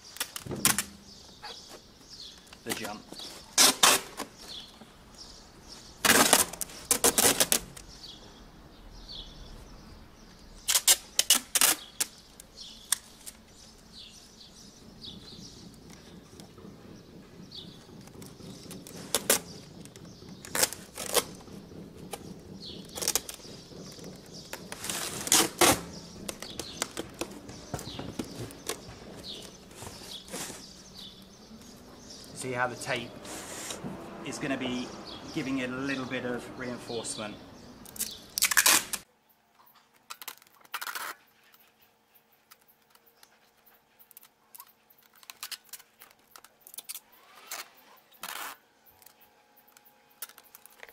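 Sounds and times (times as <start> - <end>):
birds chirping: 0.0 - 39.8
adhesive tape pulled off roll: 2.7 - 4.4, 6.0 - 7.9, 10.6 - 13.4, 18.1 - 19.5, 24.0 - 30.6, 37.8 - 39.0, 40.0 - 41.6, 44.1 - 49.2.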